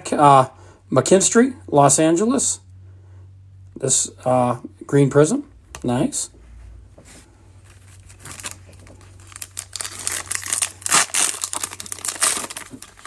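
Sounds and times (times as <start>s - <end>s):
foil wrapper crinkling and tearing: 7.7s - 13.0s.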